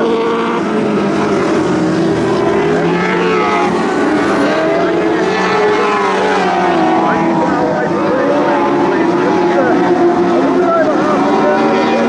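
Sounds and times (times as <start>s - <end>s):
racing car engines revving: 0.0s - 12.0s.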